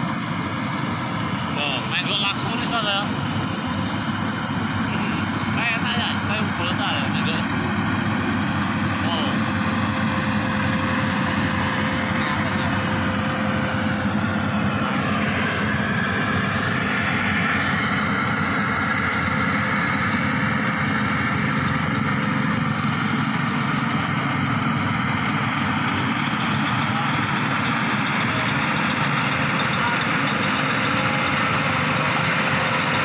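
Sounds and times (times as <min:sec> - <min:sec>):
combine harvester running: 0:00.0 - 0:33.0.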